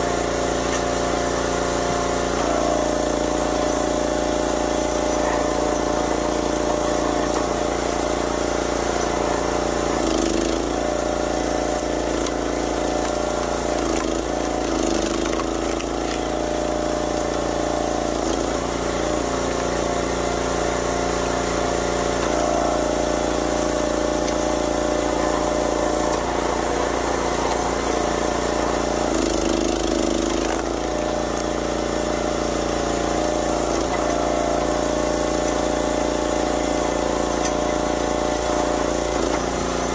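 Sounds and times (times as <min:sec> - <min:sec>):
small petrol engine running: 0:00.0 - 0:39.9.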